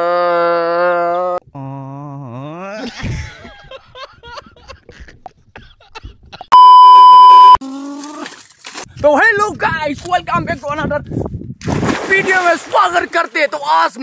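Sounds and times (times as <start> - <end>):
drawn-out voice groan: 0.0 - 2.9
choppy laughter: 2.8 - 6.5
test-tone beep: 6.6 - 7.6.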